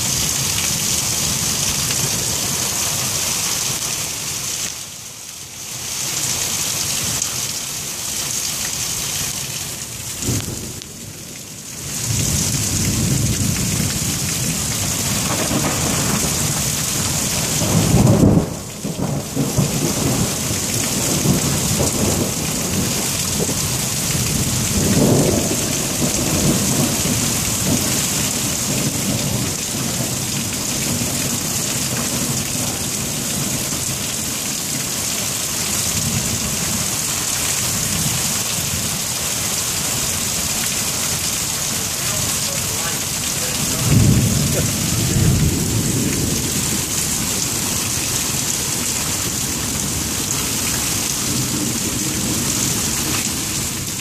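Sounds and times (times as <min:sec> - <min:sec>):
heavy rain: 0:00.0 - 0:54.0
rolling thunder: 0:10.2 - 0:34.8, 0:43.2 - 0:54.0.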